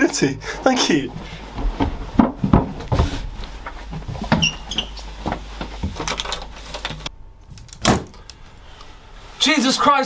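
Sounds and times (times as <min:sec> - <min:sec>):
low steady hum: 0:00.0 - 0:10.0
knocks and rustling around table: 0:01.6 - 0:04.4.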